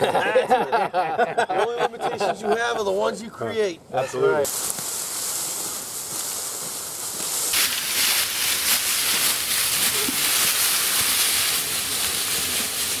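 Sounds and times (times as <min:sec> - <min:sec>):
leaves rustling from dragging: 0:04.4 - 0:13.0
footsteps crunching through leaves: 0:04.5 - 0:13.0.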